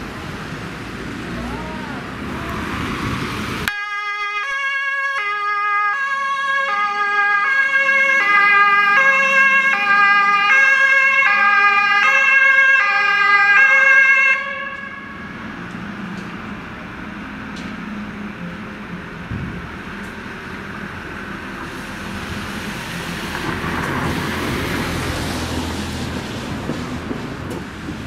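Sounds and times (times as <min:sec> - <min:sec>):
vehicle and traffic noise: 0:00.0 - 0:28.0
two-tone siren: 0:03.7 - 0:15.3.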